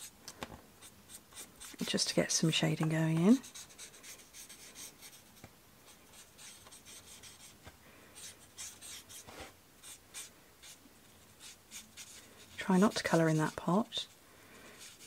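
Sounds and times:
marker nib scratching paper: 0:00.8 - 0:02.0, 0:03.3 - 0:07.6, 0:08.2 - 0:14.2, 0:14.8 - 0:15.0.

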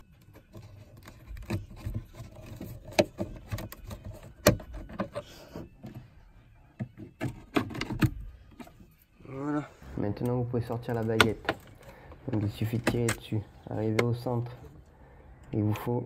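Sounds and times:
plastic trim clicks and rubbing: 0:10.7 - 0:14.6.

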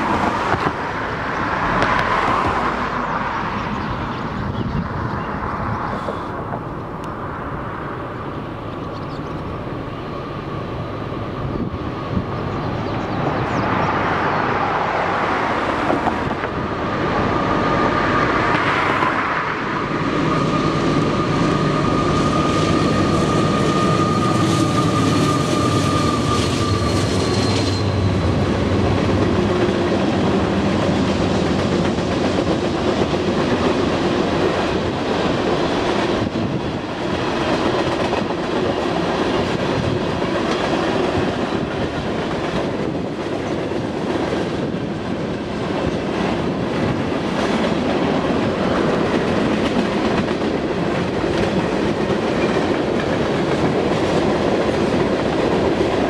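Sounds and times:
diesel locomotive engine passing: 0:00.0 - 0:56.0
locomotive high whine: 0:00.0 - 0:56.0
train wheel clatter: 0:20.3 - 0:56.0.

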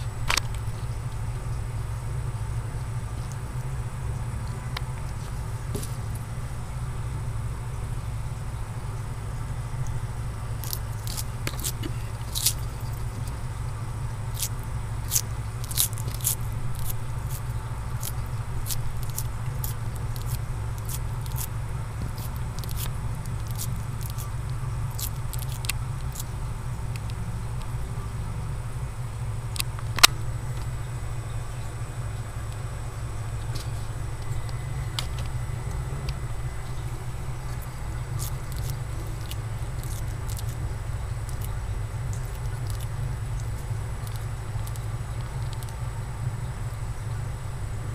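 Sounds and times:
steady low hum: 0:00.0 - 0:47.9
lizard crunching lettuce: 0:09.1 - 0:30.7, 0:32.4 - 0:46.3.

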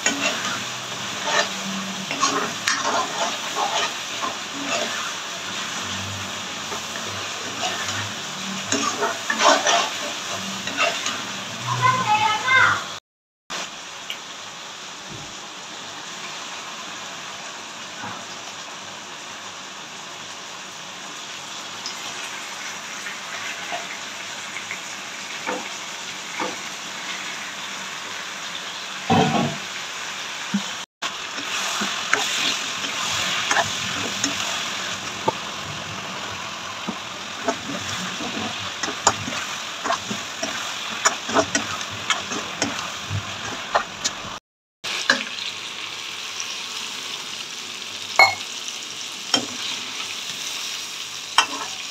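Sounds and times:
ladle clicking and scraping pan: 0:00.0 - 0:05.1, 0:06.6 - 0:11.2, 0:37.4 - 0:44.2
oil sizzling in a pan: 0:00.0 - 0:51.9.

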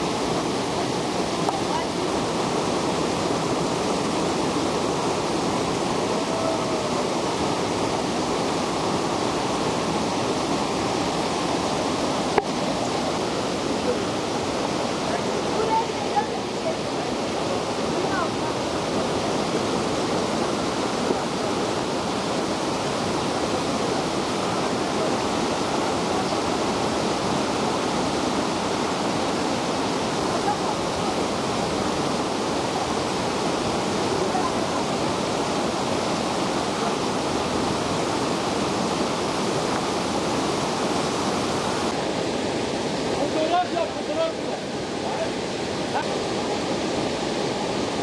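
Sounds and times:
waterfall rushing: 0:00.0 - 0:48.0.

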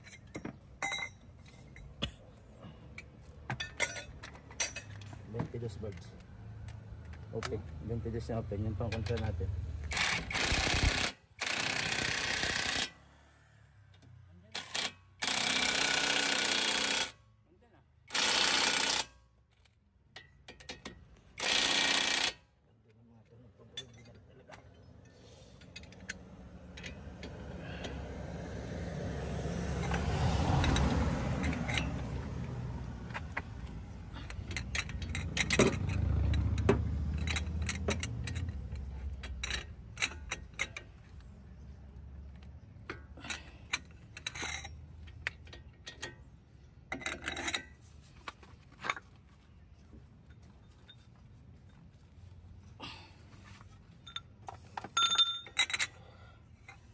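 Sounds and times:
impact wrench bursts: 0:09.8 - 0:13.1, 0:14.5 - 0:17.2, 0:18.1 - 0:19.2, 0:21.4 - 0:22.5
metallic clinks of hand tools: 0:54.0 - 0:56.0.

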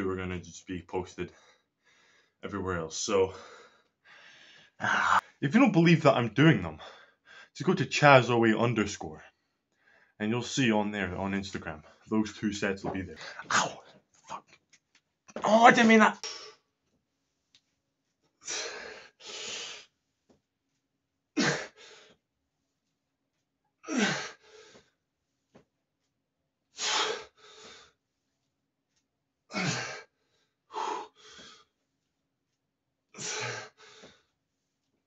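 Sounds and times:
man grunting: 0:04.8 - 0:05.2, 0:23.9 - 0:24.2.

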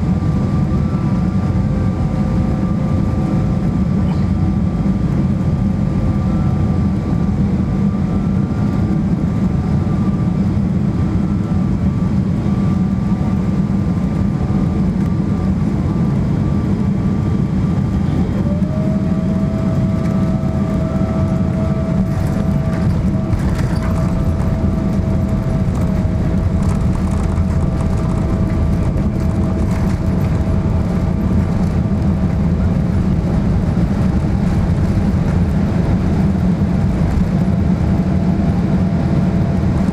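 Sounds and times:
airflow and jet engine rumble: 0:00.0 - 0:39.9
steady whine: 0:00.0 - 0:39.9
wheels rattling on runway: 0:17.8 - 0:38.8.

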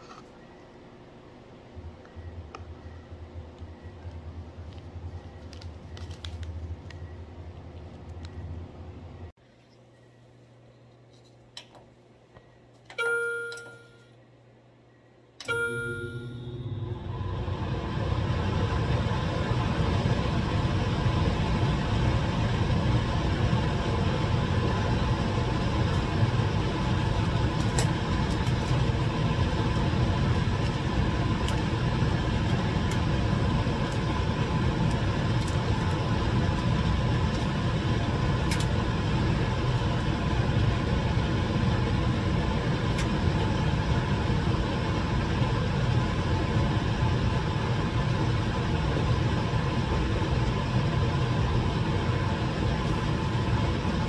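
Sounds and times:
blower rushing air: 0:16.4 - 0:54.0.

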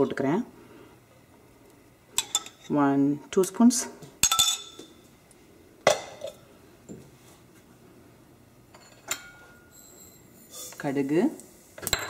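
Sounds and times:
metal spoon clinking on pan and bowl: 0:02.2 - 0:02.7, 0:04.2 - 0:04.8, 0:08.7 - 0:10.3.

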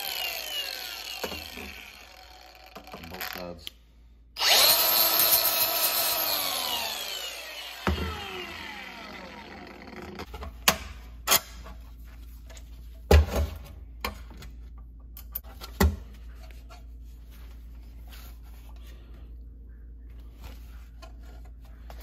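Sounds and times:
power tool spinning down: 0:00.0 - 0:03.4, 0:04.4 - 0:10.3.

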